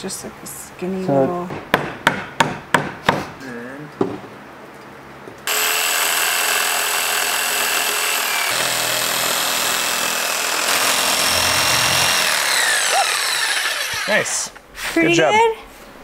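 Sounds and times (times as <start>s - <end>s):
knock: 1.5s - 3.3s
jigsaw cutting wood: 5.5s - 14.4s.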